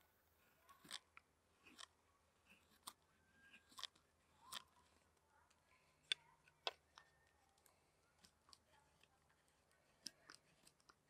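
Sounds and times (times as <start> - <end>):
carving knife slicing wood: 2.5 - 3.0.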